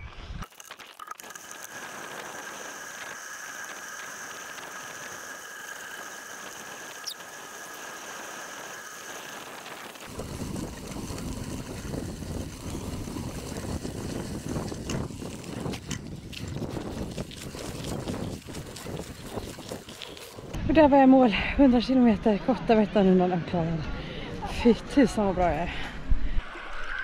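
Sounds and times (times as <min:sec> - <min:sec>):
bicycle tyres hissing on gravel: 0:00.4 - 0:20.6
thin high whine: 0:01.2 - 0:16.0.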